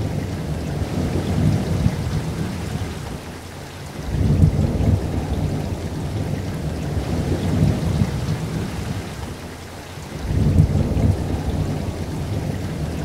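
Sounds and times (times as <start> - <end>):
heavy rain: 0.0 - 13.0
deep rumble: 10.2 - 13.0.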